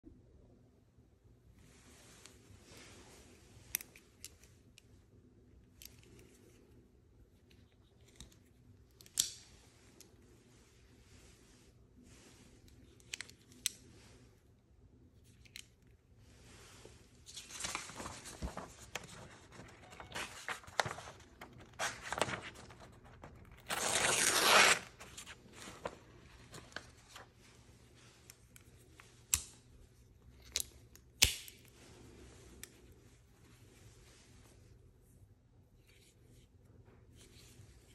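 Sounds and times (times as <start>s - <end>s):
knife slicing paper: 23.6s - 25.3s.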